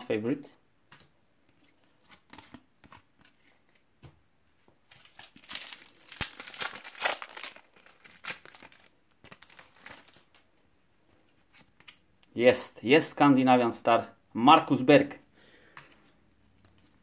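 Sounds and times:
foil packet crinkling and tearing: 4.9s - 10.5s.

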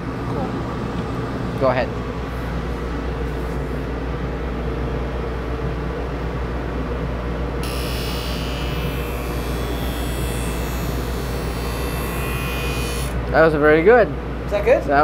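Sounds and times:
sharpening machine humming: 7.6s - 13.3s.

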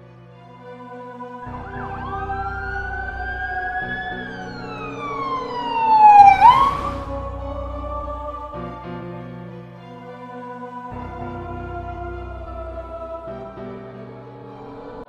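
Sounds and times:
background music: 0.0s - 15.0s
emergency vehicle siren wailing: 1.5s - 7.2s.

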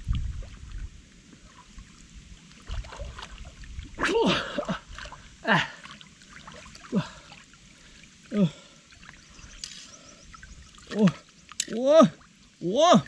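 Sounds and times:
water splashing and sloshing: 0.0s - 13.0s
person exclaiming: 4.0s - 4.8s, 5.4s - 5.8s, 8.3s - 8.6s, 10.9s - 13.0s.

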